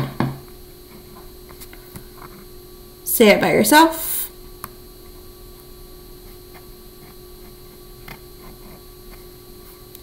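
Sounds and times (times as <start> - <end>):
electrical hum: 0.0 - 10.0.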